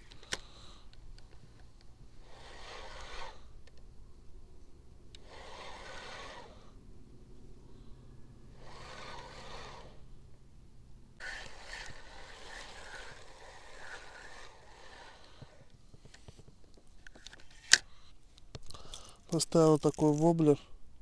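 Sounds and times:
fishing reel whirring: 0:02.1 - 0:03.7, 0:05.0 - 0:06.8, 0:08.4 - 0:10.1, 0:11.2 - 0:15.8
reel chirping: 0:02.2 - 0:03.7, 0:05.1 - 0:06.8, 0:08.4 - 0:10.1, 0:11.2 - 0:16.0.

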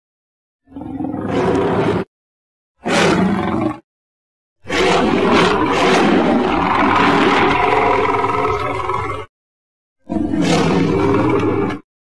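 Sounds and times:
giant crocodilian roar: 0:00.6 - 0:02.1, 0:02.8 - 0:03.8, 0:04.6 - 0:09.3, 0:10.1 - 0:11.9.

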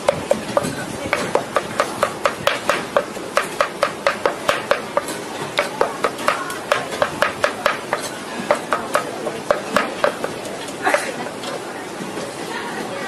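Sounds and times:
cleaver chopping: 0:00.1 - 0:10.4.

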